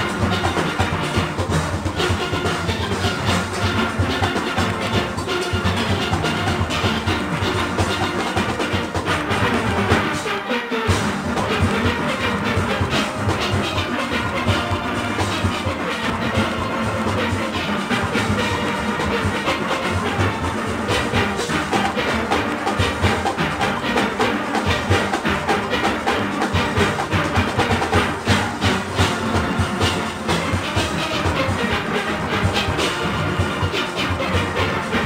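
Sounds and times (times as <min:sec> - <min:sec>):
drum and percussion rhythm: 0:00.0 - 0:35.0
steelpans playing a melody: 0:00.0 - 0:35.0.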